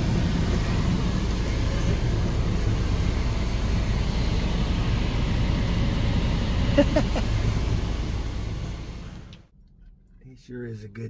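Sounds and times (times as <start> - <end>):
truck idling drone: 0.0 - 9.6.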